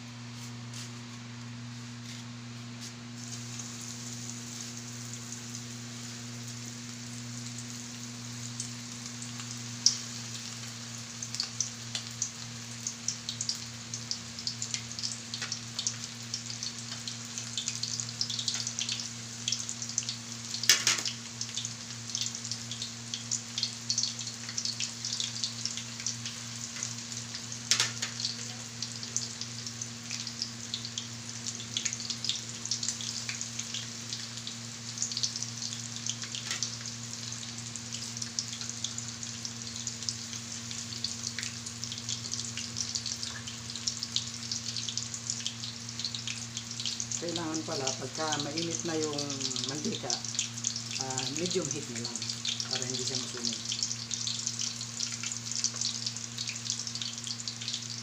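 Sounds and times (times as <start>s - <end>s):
steady low hum: 0.0s - 12.2s
chicken deep-frying in oil: 0.0s - 58.0s.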